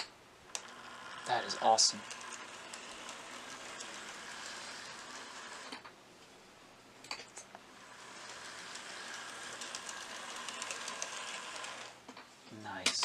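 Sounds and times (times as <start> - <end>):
model train motor whirring: 0.5 - 5.9, 7.6 - 12.0.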